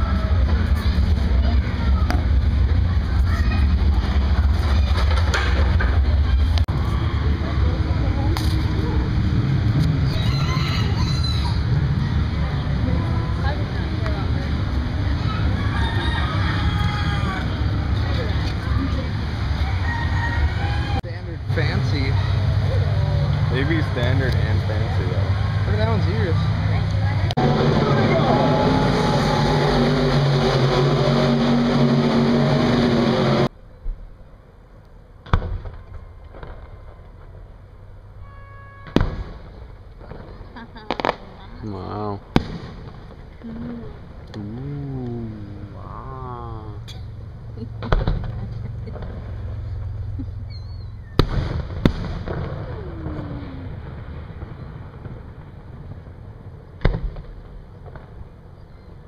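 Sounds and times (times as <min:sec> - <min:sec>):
low rumble: 0:00.0 - 0:34.4, 0:39.0 - 0:58.8
engine-like running noise: 0:00.0 - 0:38.2, 0:39.0 - 0:59.0
fireworks bangs: 0:38.8 - 0:41.6, 0:42.2 - 0:43.4, 0:47.8 - 0:49.4, 0:51.1 - 0:58.4.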